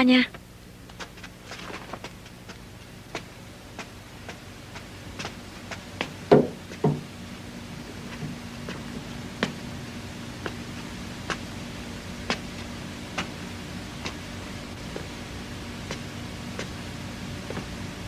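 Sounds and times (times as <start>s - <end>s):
faint steady hum: 0.0s - 18.0s
footsteps on a hard floor: 12.2s - 13.4s, 17.4s - 17.8s.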